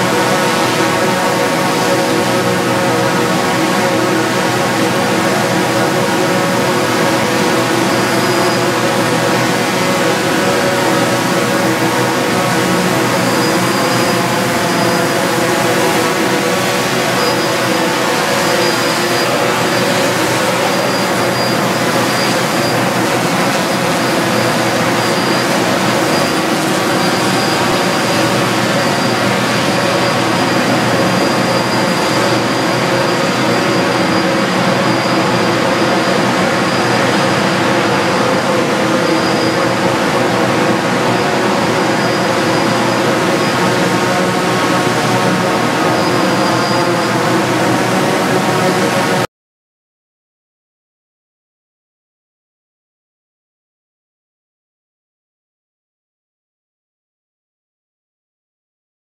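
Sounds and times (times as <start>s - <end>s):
drone rotors droning: 0.0s - 49.2s
thin high whine: 0.0s - 49.3s.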